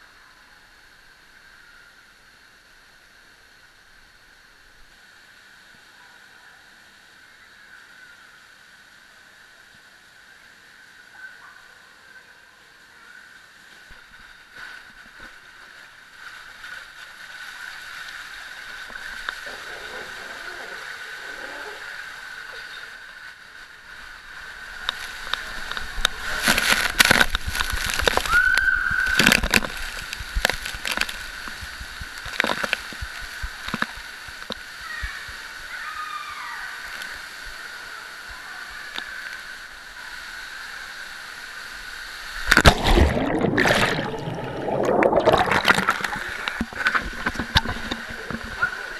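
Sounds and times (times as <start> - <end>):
water rushing through slide tube: 14.5 - 48.9
loud splash into pool: 26.2 - 31.0, 42.4 - 48.9.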